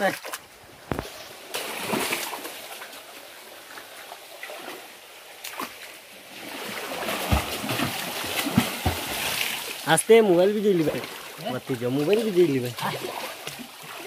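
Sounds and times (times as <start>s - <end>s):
person splashing through water: 0.1s - 2.8s, 6.4s - 9.8s, 10.8s - 14.0s
person swimming: 0.9s - 9.8s, 12.8s - 14.0s.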